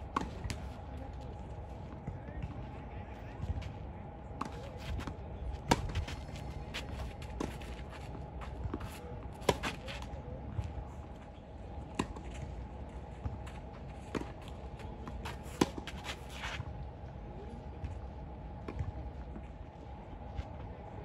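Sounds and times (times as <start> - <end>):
shoes scuffing on clay: 4.5 - 10.1, 13.2 - 16.6
racket hitting tennis ball: 8.8 - 10.1.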